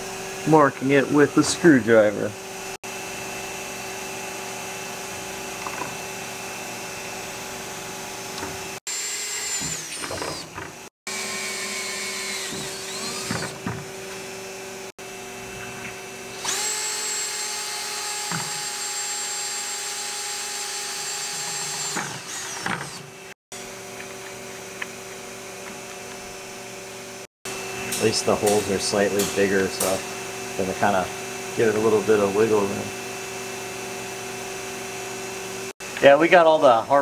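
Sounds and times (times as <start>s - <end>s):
electric drill motor whining: 2.6s - 26.8s.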